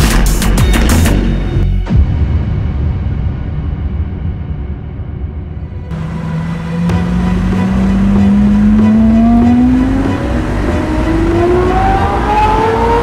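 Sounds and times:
car engine accelerating: 5.8s - 13.0s.

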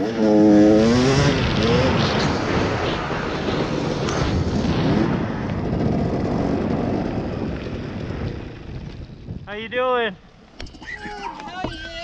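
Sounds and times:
dirt bike engine revving: 0.0s - 9.0s.

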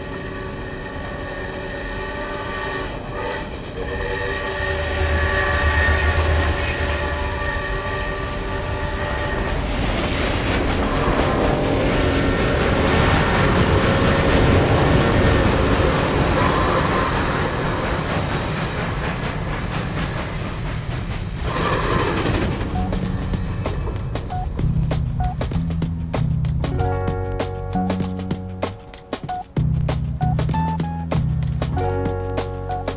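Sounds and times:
steam locomotive whistle: 0.0s - 9.7s, 15.4s - 17.7s
train rumbling past: 0.0s - 32.9s.

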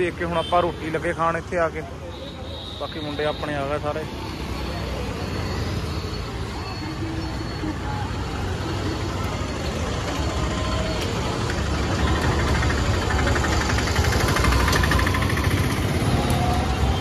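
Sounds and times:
busy street noise: 0.0s - 17.0s
motor engine running: 11.4s - 16.0s.

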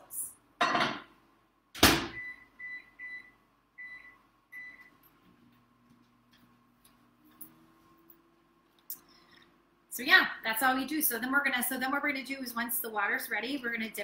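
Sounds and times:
microwave oven humming: 1.8s - 10.1s.

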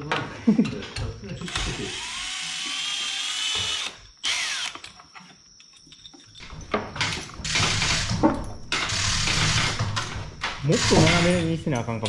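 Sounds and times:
electric ratchet whining spin: 7.4s - 9.8s.

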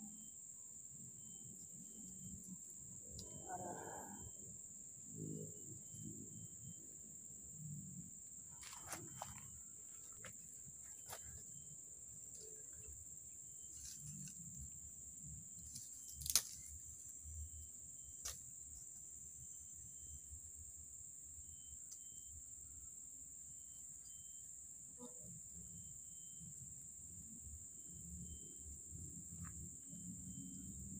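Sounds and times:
insects droning: 0.0s - 30.9s.

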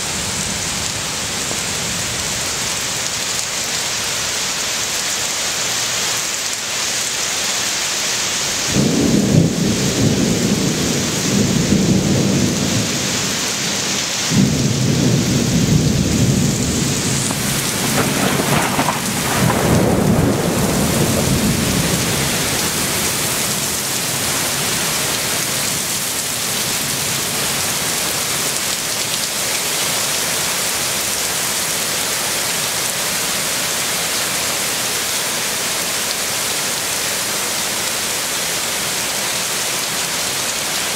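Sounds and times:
heavy rain falling: 0.0s - 40.9s
rolling thunder: 8.7s - 23.8s.

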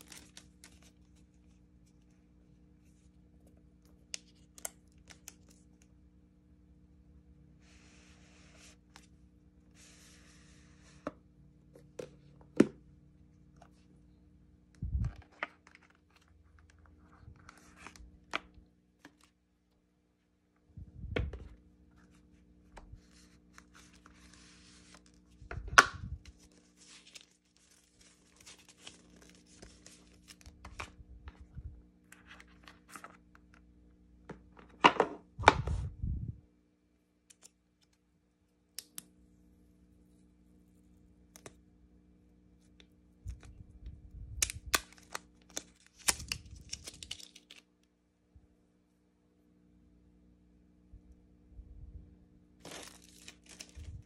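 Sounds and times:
cardboard packaging rustling: 0.0s - 1.3s, 26.3s - 31.0s, 52.6s - 54.0s.

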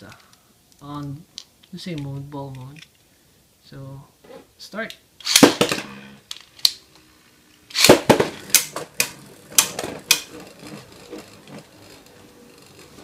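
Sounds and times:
spinning whir: 7.7s - 13.0s.

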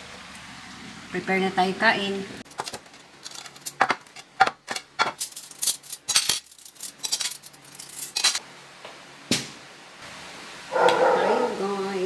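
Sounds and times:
cutlery clinking: 2.6s - 8.4s.

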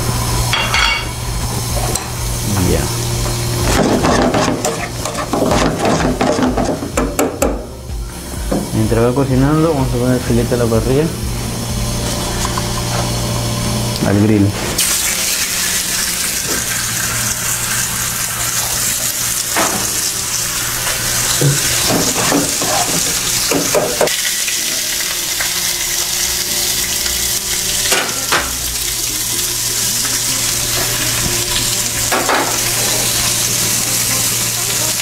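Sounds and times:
steak sizzling on grill pan: 0.0s - 14.0s, 14.8s - 35.0s
low hum: 0.0s - 21.8s.

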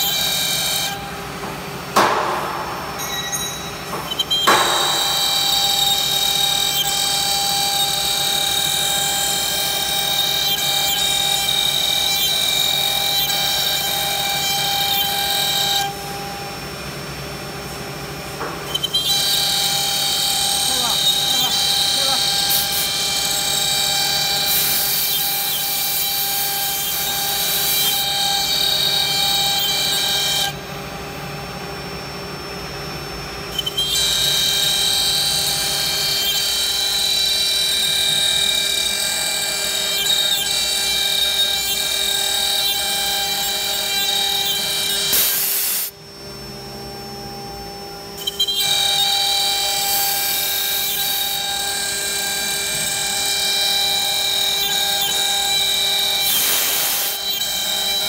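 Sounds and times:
router spindle whining: 0.0s - 1.6s, 3.0s - 58.0s
router bit cutting hiss: 4.1s - 16.0s, 18.6s - 30.6s, 33.5s - 46.0s, 48.2s - 58.0s.

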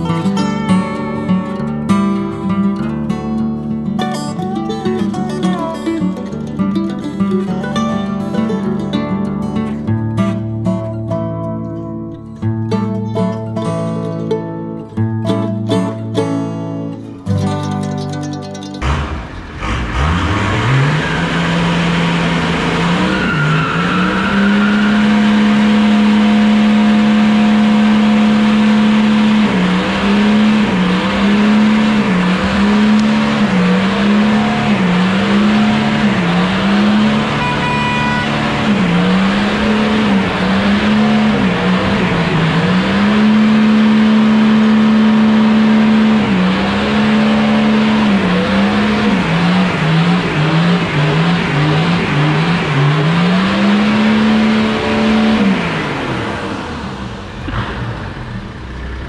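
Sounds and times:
engine revving: 18.8s - 59.0s.

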